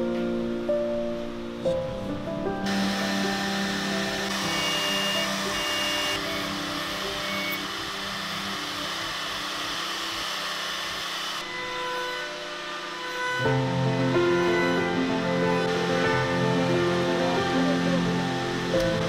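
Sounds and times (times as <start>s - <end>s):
router cutting wood: 2.6s - 19.0s.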